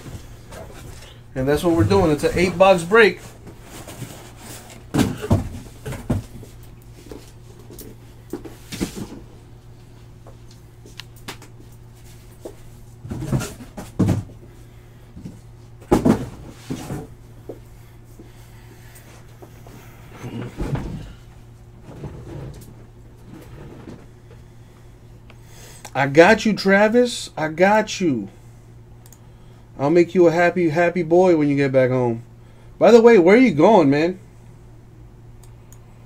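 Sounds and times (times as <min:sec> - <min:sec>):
faint steady hum: 0:00.0 - 0:36.0
cardboard box knocks and thumps: 0:04.9 - 0:06.5, 0:15.9 - 0:17.1.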